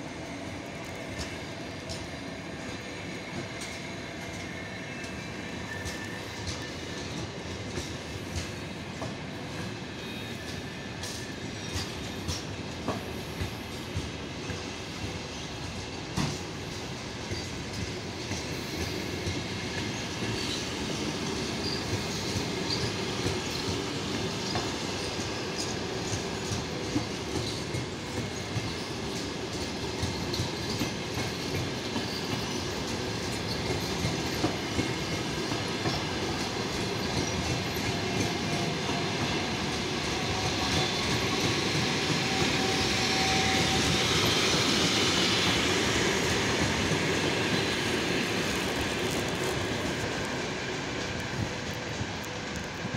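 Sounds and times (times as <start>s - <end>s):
train wheels clacking over rail joints: 0.8s - 50.4s
faint wheel squeal: 3.6s - 7.2s, 42.1s - 45.7s.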